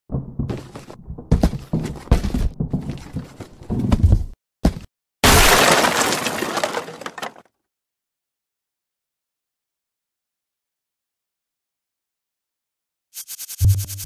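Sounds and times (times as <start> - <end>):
knocks and thuds on wood: 0.1 - 4.9
wooden crate crashing: 0.1 - 7.4.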